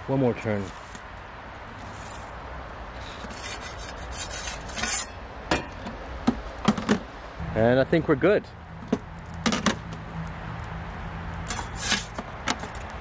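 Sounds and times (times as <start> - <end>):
metal peel scraping over stone: 3.0 - 5.8, 11.4 - 12.8.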